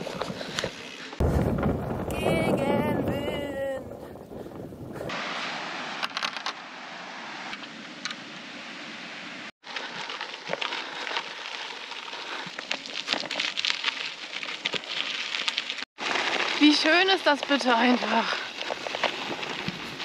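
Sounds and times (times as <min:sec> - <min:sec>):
bike tyres crunching on gravel: 0:00.0 - 0:02.8, 0:09.6 - 0:20.0.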